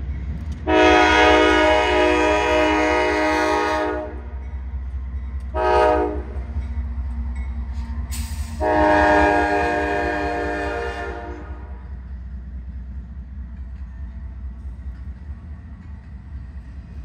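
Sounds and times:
train rumbling past: 0.0 - 17.0
locomotive air horn blasts: 0.6 - 4.3, 5.5 - 6.4, 8.5 - 11.8.

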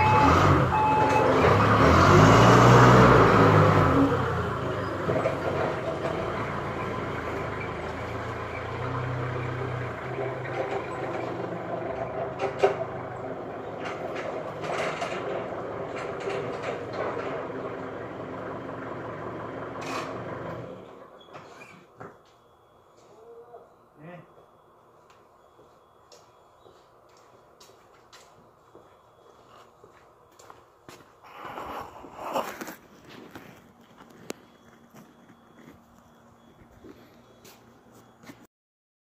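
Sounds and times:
forklift engine running: 0.0 - 21.4.

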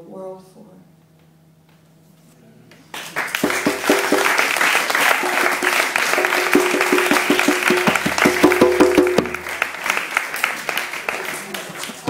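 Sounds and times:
audience applause: 2.9 - 12.0.

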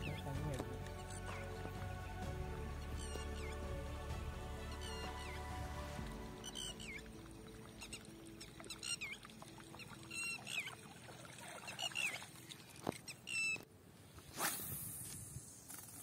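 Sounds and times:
high squeaky chirps: 2.9 - 3.6, 6.4 - 7.0, 12.9 - 13.6
fishing rod cast swish: 14.2 - 16.0.

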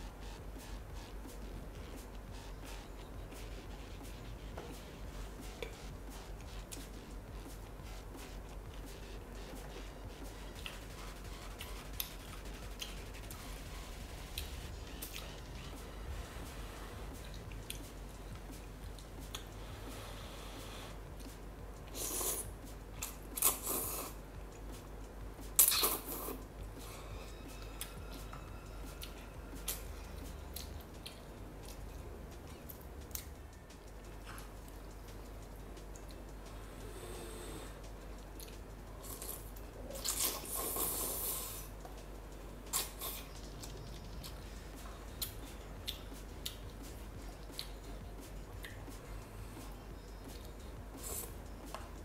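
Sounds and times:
chewing: 38.2 - 42.0.

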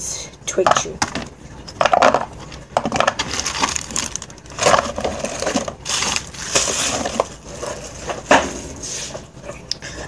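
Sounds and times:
packets rustling: 1.8 - 9.2.

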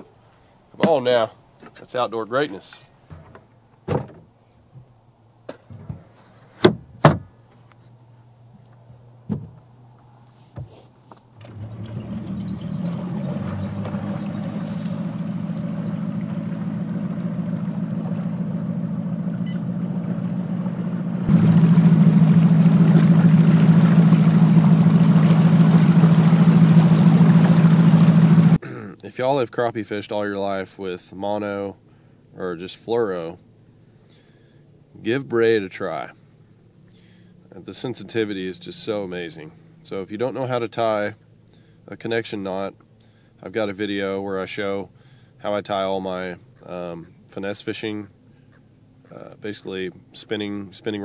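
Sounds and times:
outboard motor running: 11.4 - 28.6
wind and water rushing: 11.5 - 19.1, 21.3 - 28.6.

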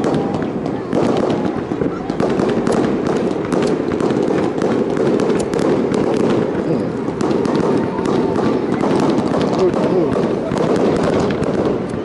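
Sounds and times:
fireworks popping and crackling: 0.0 - 12.0.

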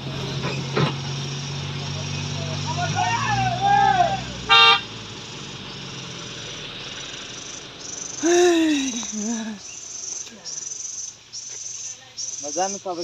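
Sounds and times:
insects buzzing in pulses: 4.6 - 13.0.

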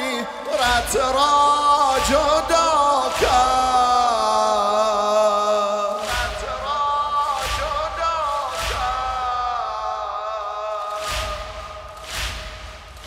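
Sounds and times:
man chanting a lament: 0.0 - 12.7
chest-beating thumps: 11.0 - 13.0.

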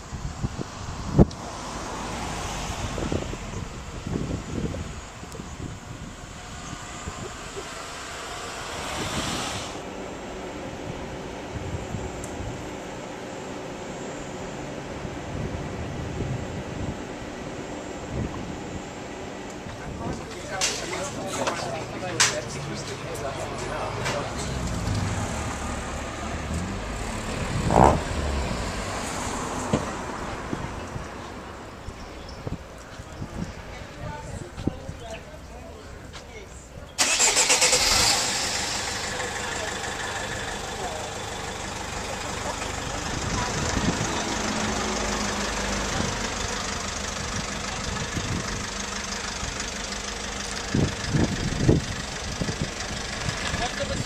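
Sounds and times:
vehicle engine rumbling: 0.0 - 54.0.

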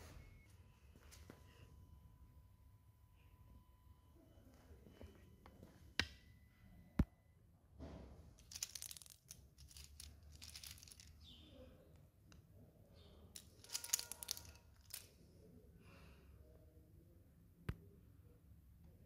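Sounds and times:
plastic pieces rustling and clicking: 8.4 - 11.3, 13.4 - 15.2.

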